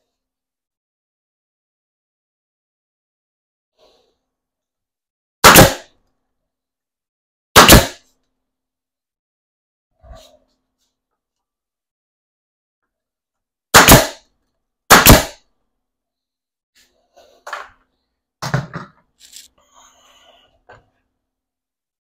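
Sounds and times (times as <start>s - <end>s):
loud sharp bangs: 5.4s - 5.9s, 7.6s - 8.0s, 13.7s - 14.2s, 14.9s - 15.4s.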